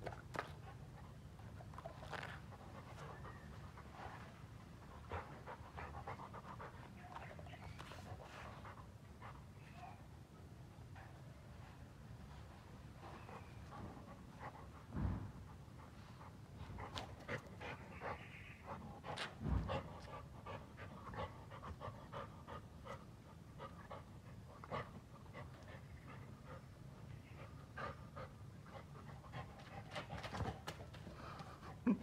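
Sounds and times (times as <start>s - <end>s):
dog panting: 0.4s - 9.8s, 10.9s - 31.8s
low thump: 14.9s - 15.4s.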